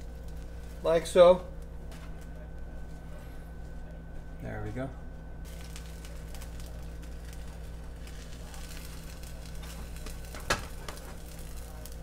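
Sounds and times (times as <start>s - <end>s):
omelette frying in pan: 0.0s - 2.2s, 5.4s - 12.0s
steady low hum: 0.0s - 12.0s.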